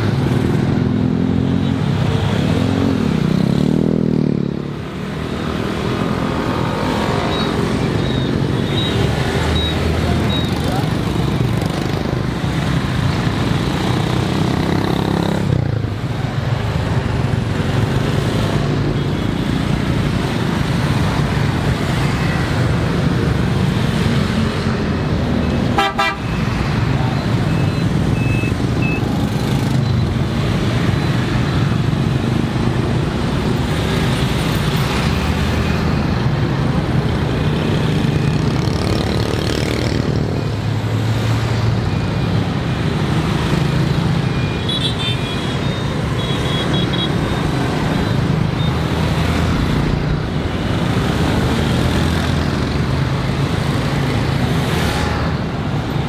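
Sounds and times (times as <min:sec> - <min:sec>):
scooters and motorbikes passing: 0:00.0 - 0:56.0
horn toots: 0:25.7 - 0:26.4.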